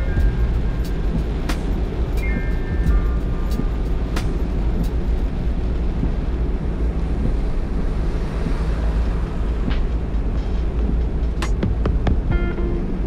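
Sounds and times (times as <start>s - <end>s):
heavy rain: 0.0s - 13.0s
low car rumble: 0.0s - 13.0s
tyres on wet road: 0.0s - 13.0s.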